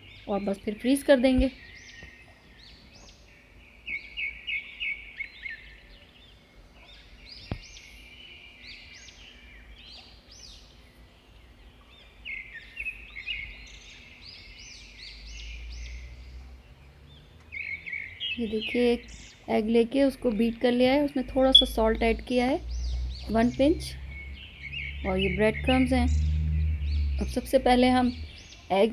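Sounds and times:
birds chirping: 0:00.0 - 0:28.9.

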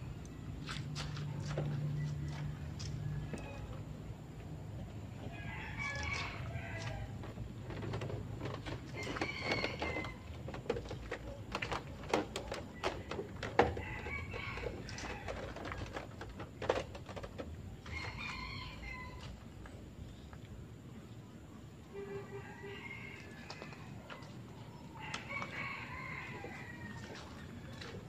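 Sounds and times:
roosters crowing: 0:05.1 - 0:10.5, 0:12.4 - 0:16.7, 0:17.8 - 0:19.5, 0:21.9 - 0:28.0.

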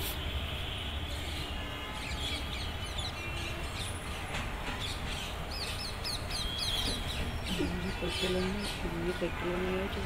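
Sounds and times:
small birds chirping: 0:04.8 - 0:09.6.

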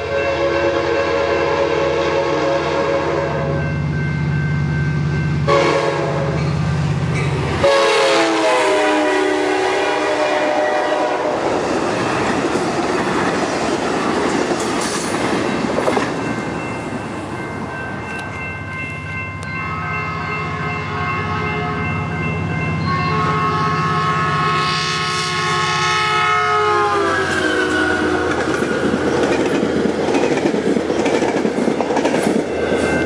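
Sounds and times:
second train horn: 0:00.0 - 0:03.7, 0:05.4 - 0:06.5, 0:07.6 - 0:11.5, 0:22.8 - 0:28.5
train chime horn: 0:00.0 - 0:06.8, 0:07.6 - 0:11.5, 0:16.3 - 0:28.6
passenger cars rumbling and clattering: 0:11.5 - 0:18.4.

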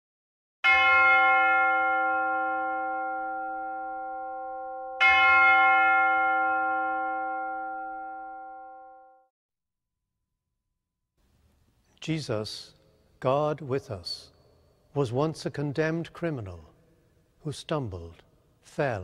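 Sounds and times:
church bell ringing: 0:00.6 - 0:09.3.

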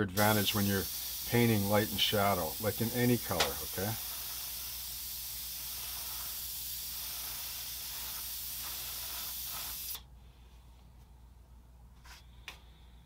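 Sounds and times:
airbrush spraying hiss: 0:00.0 - 0:10.1.

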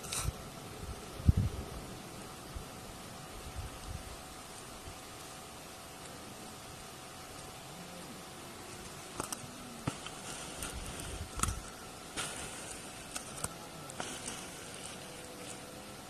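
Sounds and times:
dry grass rustling: 0:08.7 - 0:16.0.

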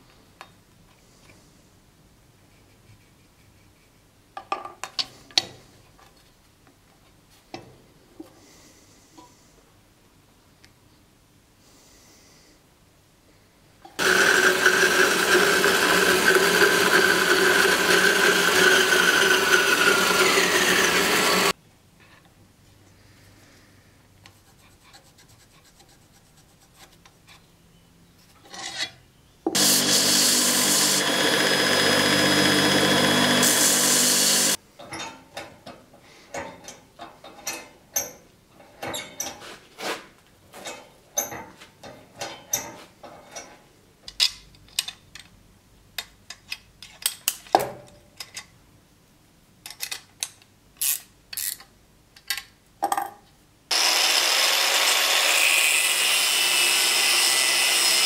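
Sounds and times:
power tool grinding metal: 0:14.0 - 0:21.6, 0:29.5 - 0:34.6, 0:53.7 - 0:58.0.

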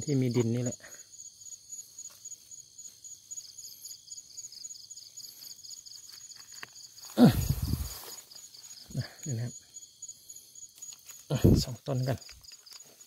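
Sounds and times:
crickets chirping: 0:00.0 - 0:13.0
high insect buzz: 0:00.0 - 0:13.0
leaves rustling: 0:05.2 - 0:09.3, 0:10.6 - 0:13.0.

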